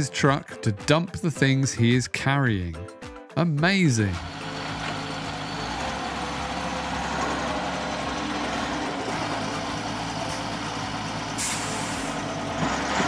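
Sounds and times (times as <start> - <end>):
truck engine running: 4.0 - 13.0
air brake hiss: 11.4 - 12.3.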